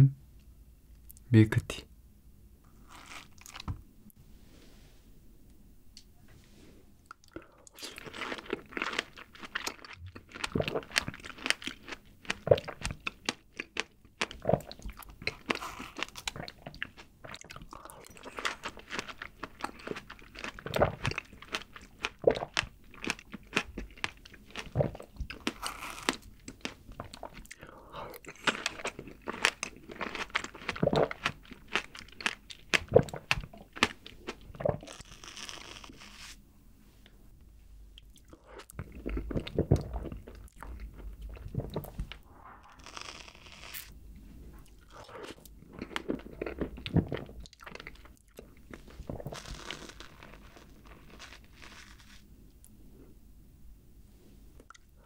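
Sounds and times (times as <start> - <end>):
strawberries being bitten and chewed: 7.1 - 36.4, 38.0 - 43.9, 44.6 - 52.7.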